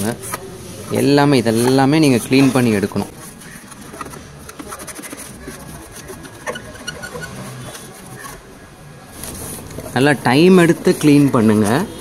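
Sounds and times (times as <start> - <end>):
cloth scrubbing car body panel: 0.2 - 8.6.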